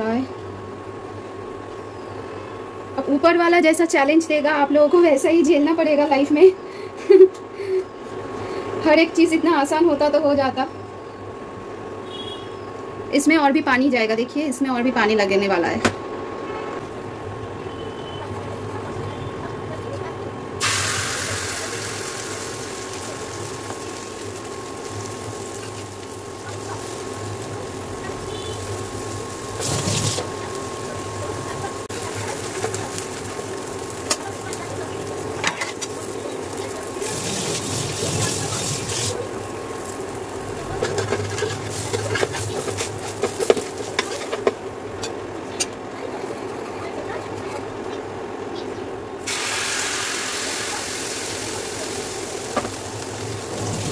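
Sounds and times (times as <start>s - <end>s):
cooktop hum and whine: 0.0s - 53.9s
batter sizzling in hot oil: 20.6s - 44.4s, 49.2s - 53.9s.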